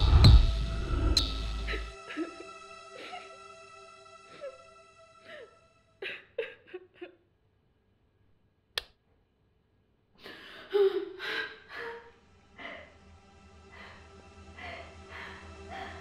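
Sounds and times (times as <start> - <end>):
woman sobbing: 1.6 - 3.5, 4.3 - 7.2, 10.2 - 13.0.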